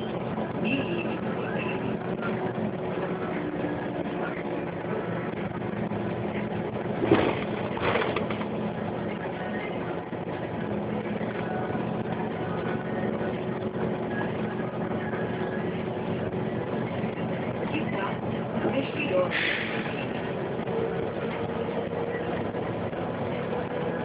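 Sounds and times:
bus engine humming: 0:00.0 - 0:24.0.

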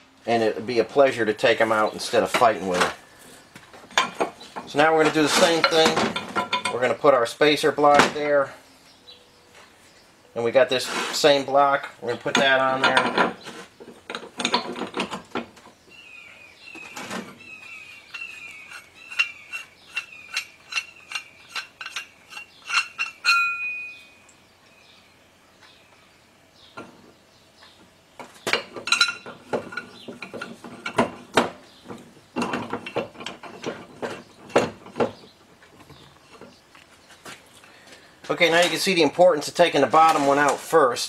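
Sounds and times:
metal parts clinking and knocking: 0:04.0 - 0:06.8, 0:12.2 - 0:13.5, 0:14.1 - 0:15.6, 0:19.1 - 0:23.9, 0:28.5 - 0:35.2
short metallic ring: 0:22.7 - 0:24.2.

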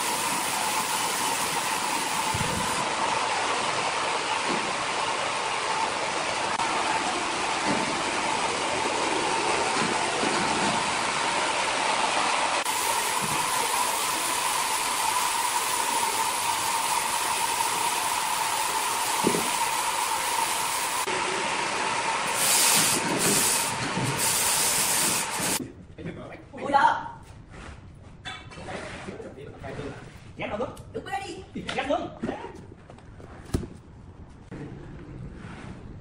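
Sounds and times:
loud hissing bursts: 0:00.0 - 0:02.8, 0:12.6 - 0:21.4, 0:22.2 - 0:25.6
band sawmill running with whine: 0:00.0 - 0:25.6.

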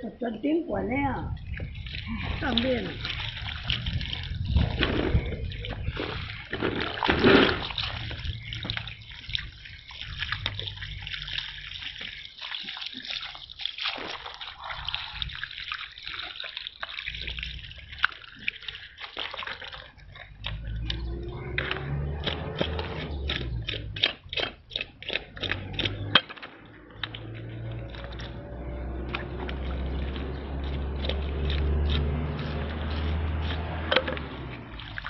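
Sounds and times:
hose water splashing on fish: 0:01.4 - 0:35.0.

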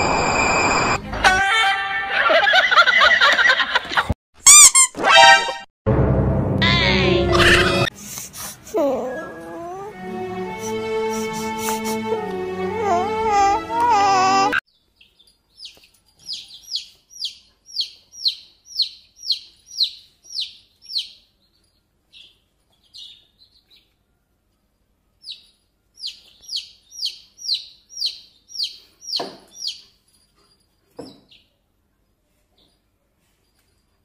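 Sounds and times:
baby chick peeping: 0:14.7 - 0:24.0, 0:25.2 - 0:30.0.

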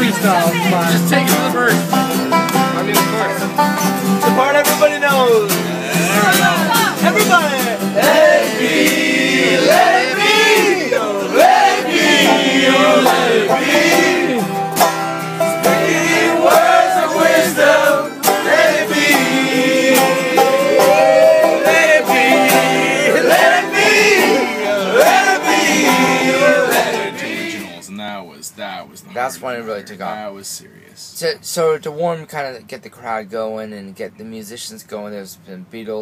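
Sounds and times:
acoustic guitar strummed: 0:00.0 - 0:27.9
man singing: 0:05.4 - 0:07.4.

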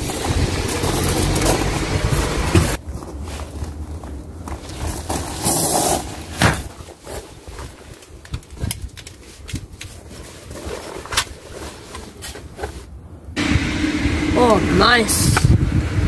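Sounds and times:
footsteps on gravel: 0:00.2 - 0:08.2
handgun handling clicks and rustles: 0:07.0 - 0:12.8.

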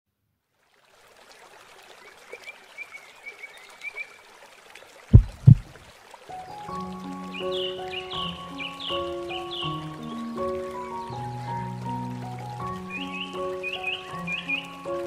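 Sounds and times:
deep loud thumps: 0:05.1 - 0:05.7
music with held notes: 0:06.4 - 0:15.0.

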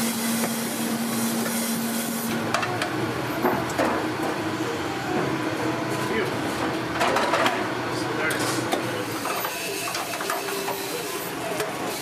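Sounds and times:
trays and steel pans clattering: 0:07.0 - 0:07.6.

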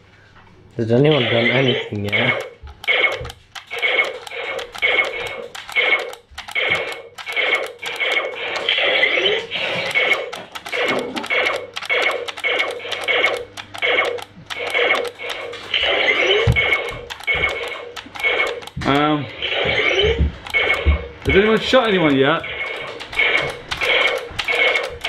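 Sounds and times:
toy blaster electronic sound effects: 0:01.1 - 0:25.0.

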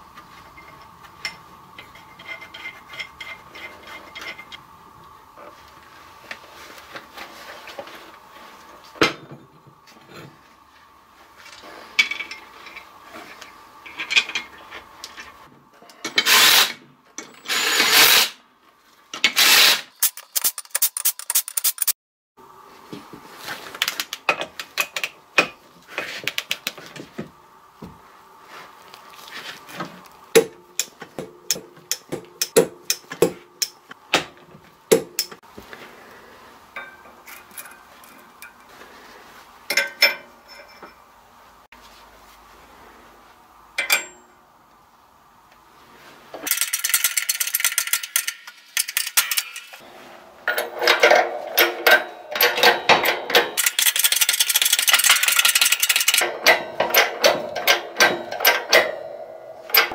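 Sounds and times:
ratchet clicking: 0:19.4 - 0:21.9, 0:46.5 - 0:49.8, 0:53.6 - 0:56.2
metal taps and clinks: 0:43.8 - 0:44.3.

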